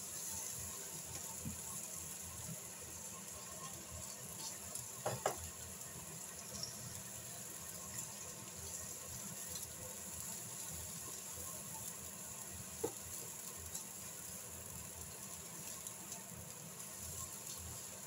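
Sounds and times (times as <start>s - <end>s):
vegetables sizzling in a frying pan: 0.0s - 18.0s.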